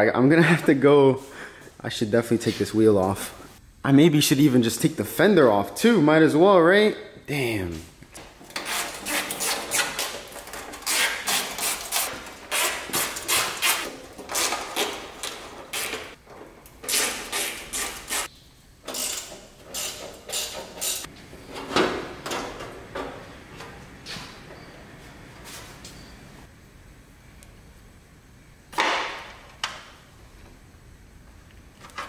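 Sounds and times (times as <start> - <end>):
hand ratchet clicking: 18.9 - 21.1.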